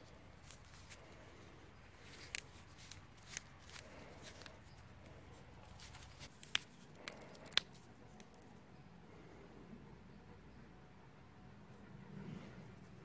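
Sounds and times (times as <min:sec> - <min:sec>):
paper rustling: 0:00.4 - 0:07.9.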